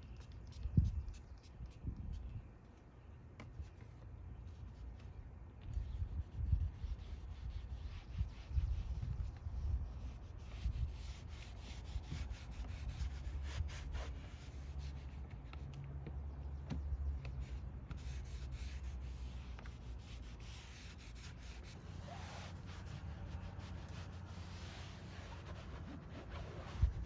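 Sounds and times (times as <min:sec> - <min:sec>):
towel wiping plastic panel: 0:16.7 - 0:27.0.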